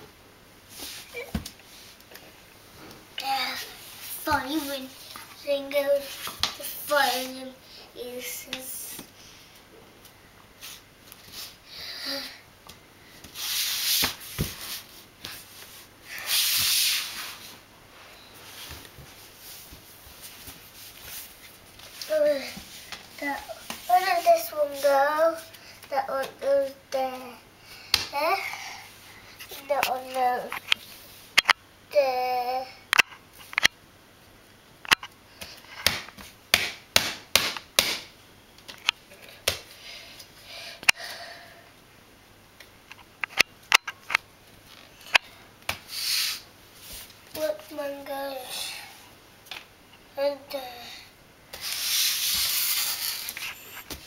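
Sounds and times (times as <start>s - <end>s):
rubbing scuffing noises: 3.5s - 7.6s, 13.2s - 17.6s, 18.4s - 25.6s, 45.8s - 47.6s, 51.5s - 54.0s.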